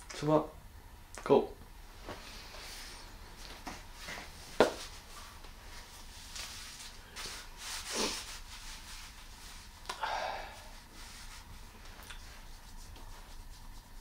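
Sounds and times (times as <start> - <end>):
cloth rustling: 1.9 - 9.8.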